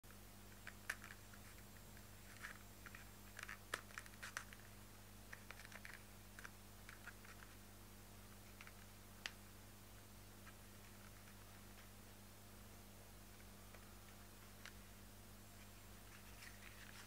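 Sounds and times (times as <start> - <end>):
steady low hum: 0.1 - 17.0
cards scraping against leather: 0.6 - 4.7, 5.3 - 7.6, 15.6 - 17.0.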